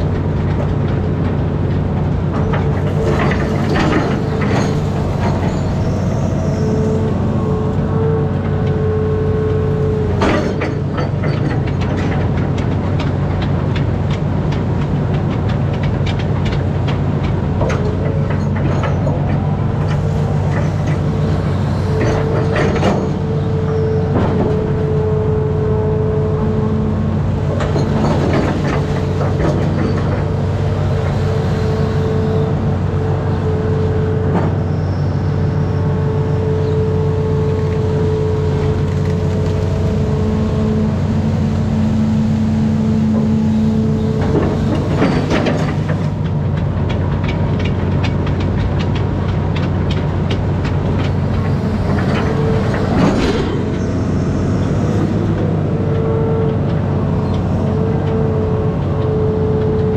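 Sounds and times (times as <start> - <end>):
excavator diesel engine running: 0.0 - 59.9
hydraulic whine: 2.4 - 11.6, 50.2 - 59.9.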